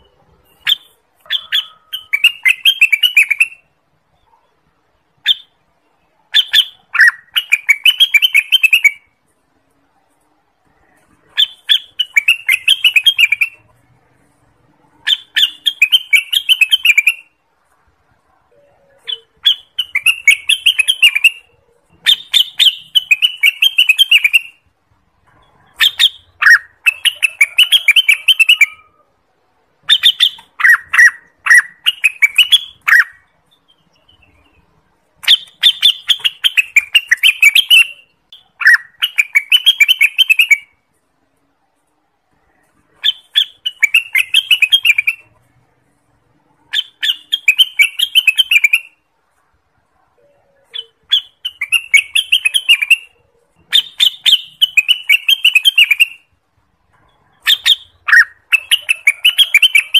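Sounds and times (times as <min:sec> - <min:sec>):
bird singing chattering phrases: 0:00.0 - 0:09.1, 0:14.8 - 0:17.3, 0:18.5 - 0:24.6, 0:29.8 - 0:40.8, 0:46.6 - 0:49.0, 0:50.2 - 0:56.2, 0:57.0 - 0:59.9.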